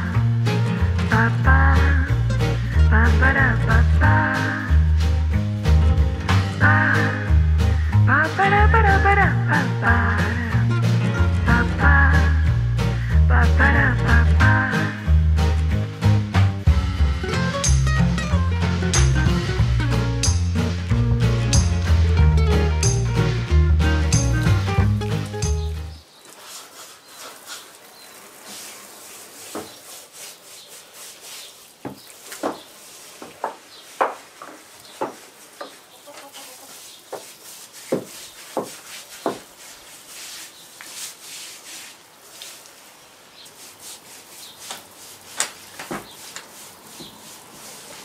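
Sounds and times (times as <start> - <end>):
scraping on wooden coop: 26.3 - 41.9, 43.6 - 48.0.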